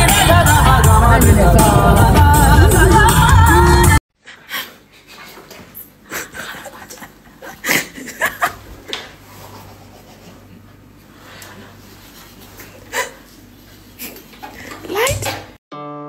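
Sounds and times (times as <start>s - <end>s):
background music: 0.0s - 4.0s
stifled giggling: 6.1s - 8.9s.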